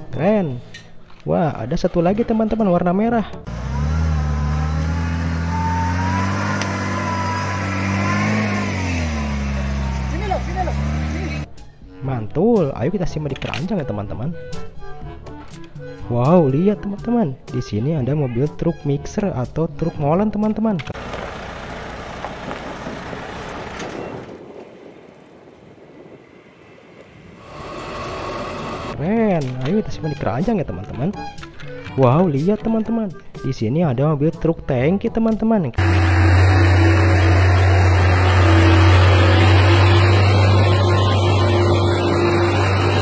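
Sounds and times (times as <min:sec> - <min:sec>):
concrete mixer truck running: 0:21.0 - 0:24.3, 0:27.4 - 0:29.0, 0:35.8 - 0:43.0.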